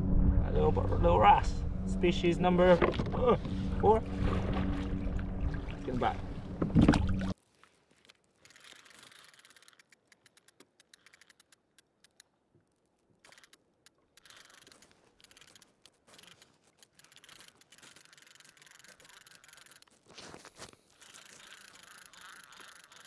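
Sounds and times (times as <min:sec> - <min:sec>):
faint small clicks: 0:08.0 - 0:12.4, 0:13.2 - 0:20.0.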